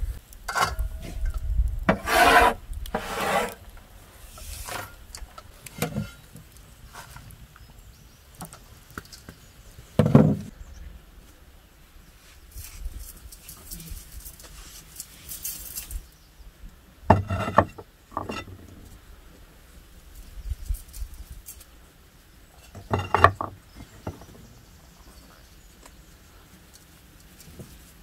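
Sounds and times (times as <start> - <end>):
clay pots clattering on wooden tray: 17.1 - 18.6, 22.7 - 24.3.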